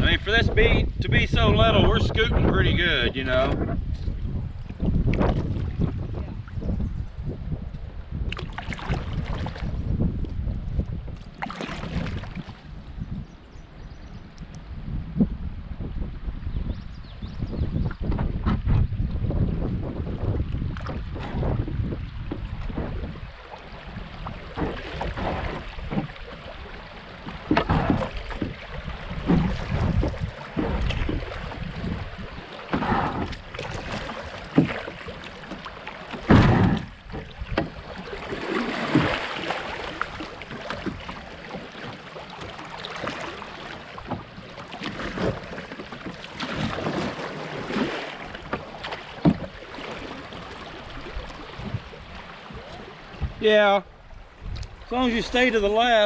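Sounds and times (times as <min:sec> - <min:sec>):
water rushing and splashing: 0:00.0 - 0:06.7, 0:08.3 - 0:12.9, 0:17.9 - 0:56.0
wind rumble on microphone: 0:00.0 - 0:56.0
loud water splash: 0:22.9 - 0:43.9
knocks on kayak: 0:27.2 - 0:28.6, 0:29.2 - 0:37.8, 0:48.4 - 0:49.6
creek water rushing: 0:37.3 - 0:54.2.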